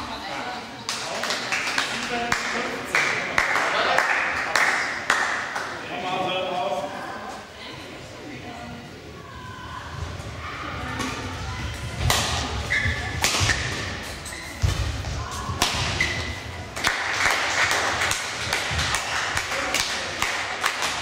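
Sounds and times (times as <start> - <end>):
sneakers squeaking on court floor: 12.3 - 16.6
racket striking shuttlecock: 13.2 - 13.8.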